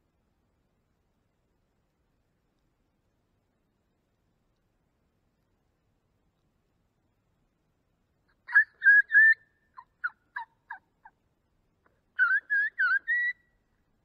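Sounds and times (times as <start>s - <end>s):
turkey call whistles and yelps: 8.3s - 11.2s, 12.2s - 13.6s.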